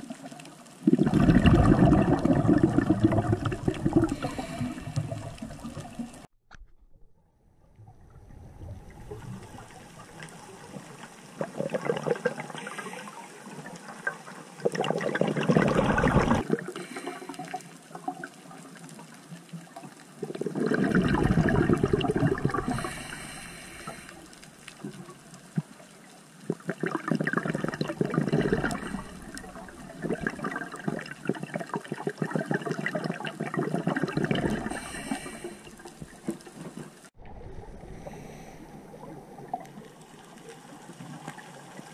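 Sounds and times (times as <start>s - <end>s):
underwater exhaust bubbles: 0.0s - 6.3s, 6.9s - 41.9s
quiet hiss: 22.7s - 26.5s.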